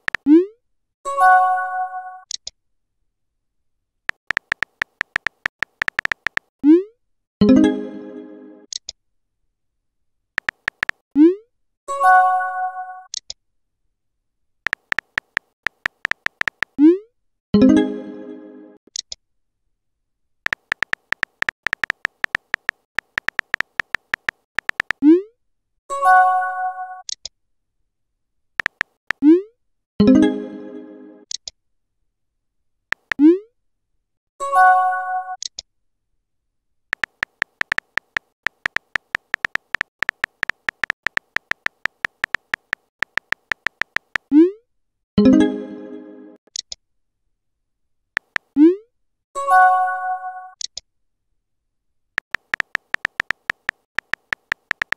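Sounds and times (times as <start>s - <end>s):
phone keyboard key clicks: 0.0s - 0.3s, 4.1s - 6.5s, 10.4s - 11.0s, 14.7s - 16.8s, 20.5s - 25.0s, 28.6s - 29.0s, 32.9s - 33.2s, 36.9s - 44.3s, 48.2s - 48.6s, 52.2s - 54.9s.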